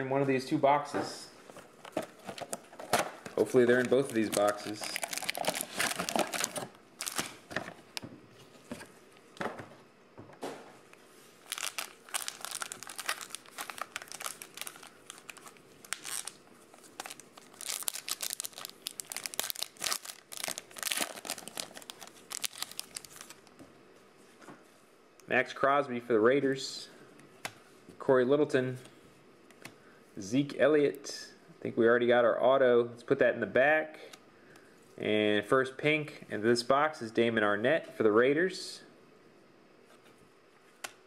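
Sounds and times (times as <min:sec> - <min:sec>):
plastic wrappers crinkling and tearing: 0:01.8 - 0:08.0, 0:11.4 - 0:23.5.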